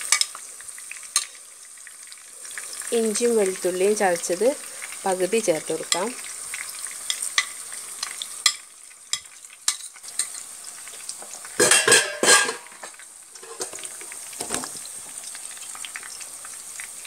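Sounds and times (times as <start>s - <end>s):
food frying in oil: 0.0s - 17.0s.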